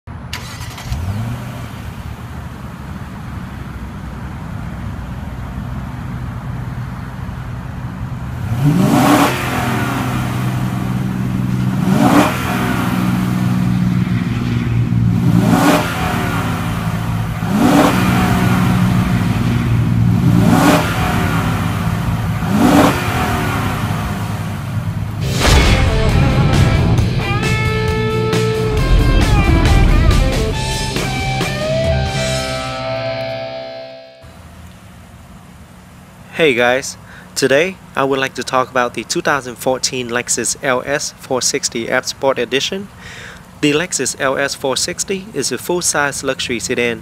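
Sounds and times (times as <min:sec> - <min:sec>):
car engine starting and idling: 0:00.1 - 0:47.0
engine revving: 0:00.2 - 0:03.4, 0:07.8 - 0:33.6.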